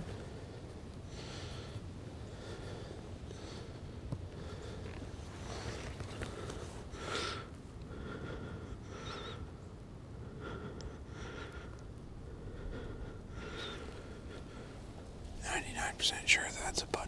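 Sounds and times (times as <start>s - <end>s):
person breathing heavily: 10.2s - 14.8s.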